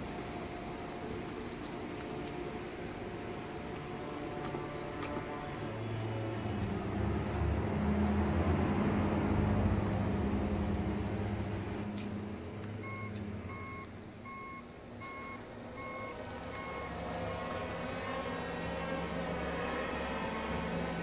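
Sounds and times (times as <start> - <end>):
vehicle engine hum: 0.0 - 21.0
reversing alarm beeping: 12.8 - 17.3.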